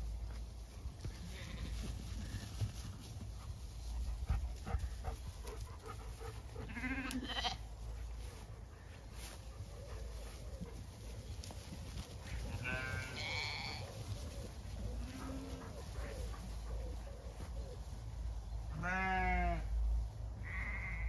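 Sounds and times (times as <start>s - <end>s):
sheep bleating: 6.7s - 7.6s, 12.5s - 13.9s, 18.7s - 19.7s, 20.4s - 21.0s.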